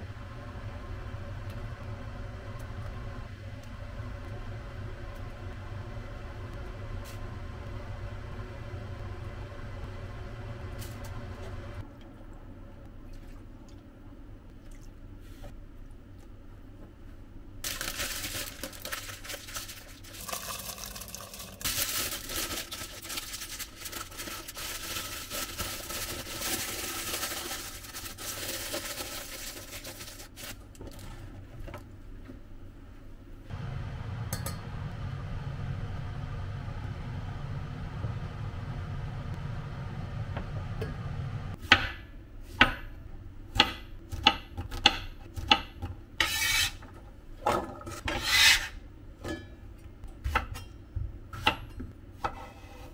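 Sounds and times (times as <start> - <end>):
low steady hum: 0.0 - 44.1
aluminium foil crinkling: 17.6 - 31.0.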